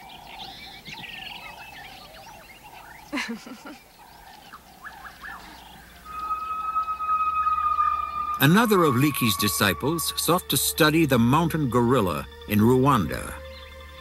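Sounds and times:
loud bird call: 0:00.0 - 0:10.2
birds chirping and trilling: 0:00.0 - 0:14.0
held tone of background music: 0:05.8 - 0:14.0.

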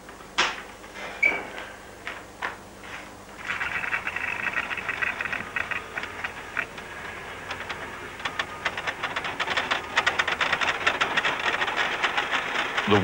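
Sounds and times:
wheels clattering over rail joints: 0:03.4 - 0:13.0.

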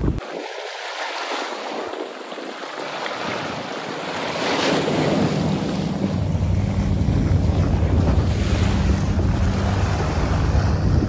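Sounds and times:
seawater lapping over rocks: 0:00.2 - 0:11.0
steady low rumble: 0:05.0 - 0:11.0.

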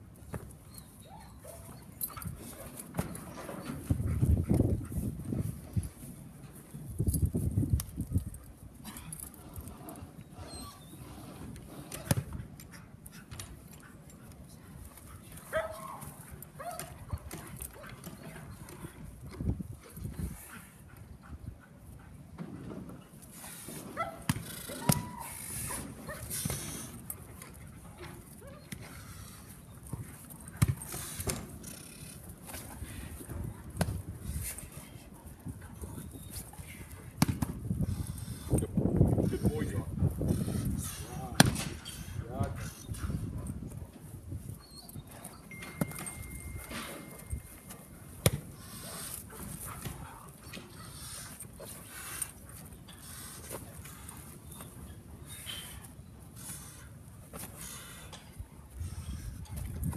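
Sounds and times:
wind on microphone: 0:03.8 - 0:06.0, 0:06.8 - 0:08.4, 0:35.4 - 0:44.6, 0:58.8 - 0:59.9.

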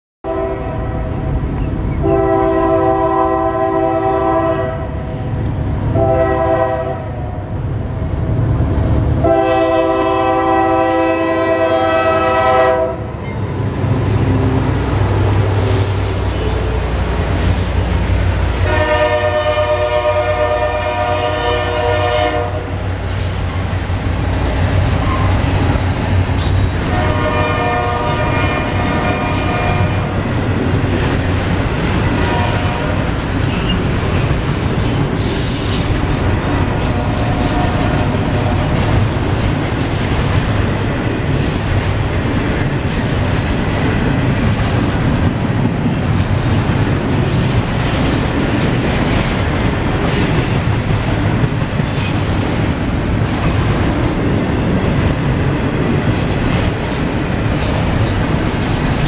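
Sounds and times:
locomotive air horn blasts: 0:00.2 - 0:01.2, 0:02.0 - 0:05.0, 0:05.9 - 0:07.3, 0:09.2 - 0:13.2, 0:18.6 - 0:22.8, 0:26.8 - 0:30.2, 0:32.2 - 0:33.1
locomotive engine rumbling: 0:07.5 - 0:59.0
freight cars rolling on rails: 0:07.6 - 0:59.0.

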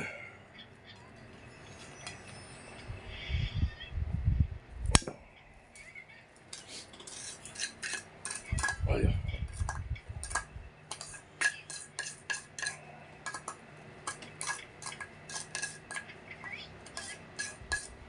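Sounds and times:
utensils clicking against steel bowl: 0:06.5 - 0:08.8, 0:09.5 - 0:16.2, 0:16.8 - 0:18.0.

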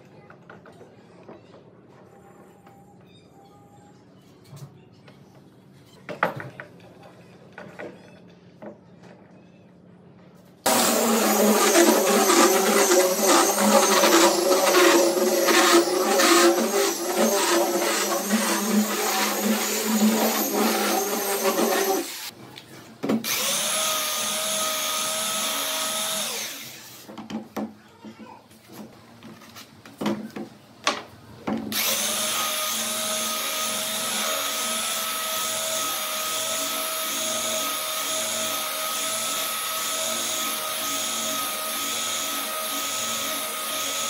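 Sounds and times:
electric belt sander sanding wood: 0:10.7 - 0:22.3, 0:31.8 - 0:44.0.

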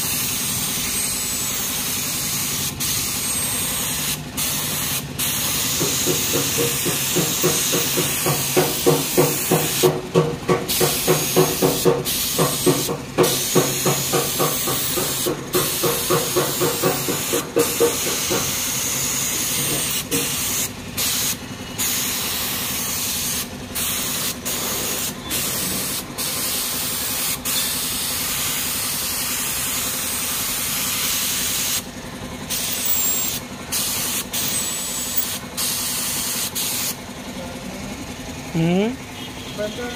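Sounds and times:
spray gun hissing: 0:00.0 - 0:10.0, 0:10.7 - 0:31.8.

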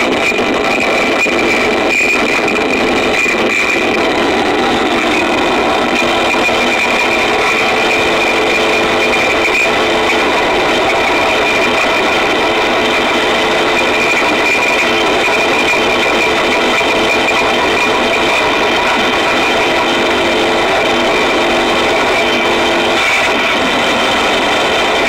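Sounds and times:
distorted churning noise: 0:00.0 - 0:25.0
steady high whine: 0:00.0 - 0:25.0.

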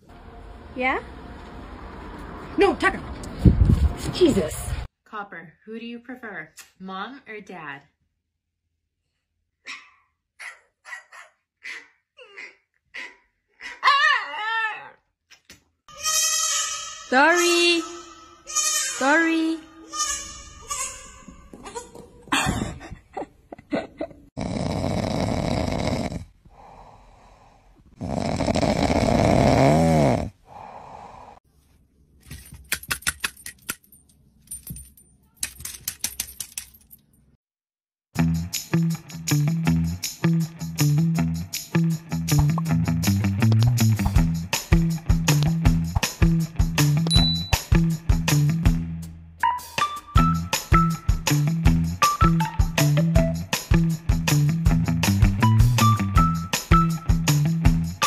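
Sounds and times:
cat snoring: 0:24.4 - 0:31.4
plastic toy clicking and clattering: 0:35.4 - 0:36.8.

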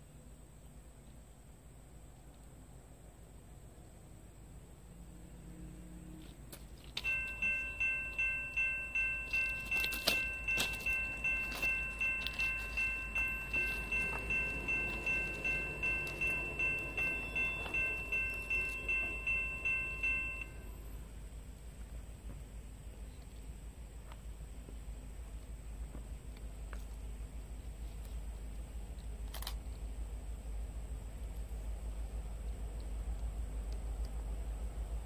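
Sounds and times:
crossing warning bell ringing: 0:06.9 - 0:21.2.

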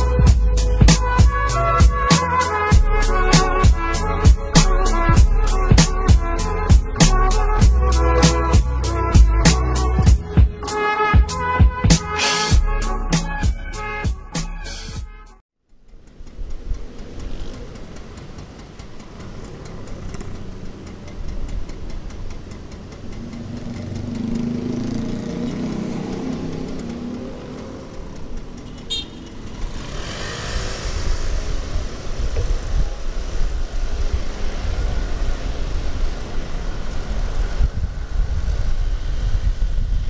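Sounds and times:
motorbike engines idling and revving: 0:00.0 - 0:15.0, 0:15.7 - 0:40.0
wind rumbling on microphone: 0:29.6 - 0:40.0.

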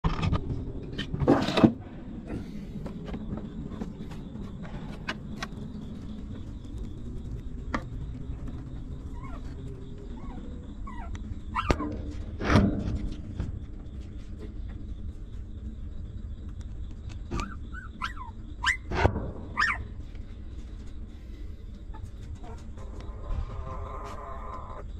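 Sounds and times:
puppies whimpering: 0:09.1 - 0:11.8.

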